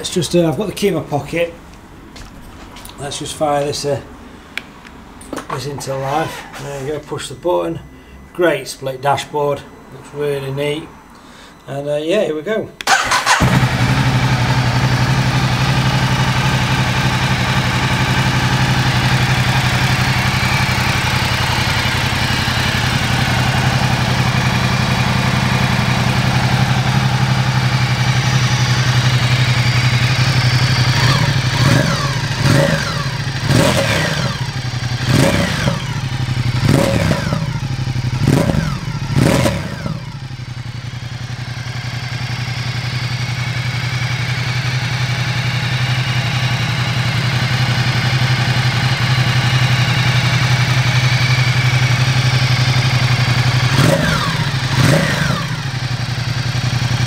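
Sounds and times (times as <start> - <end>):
motorcycle engine idling and revving: 12.8 - 57.0.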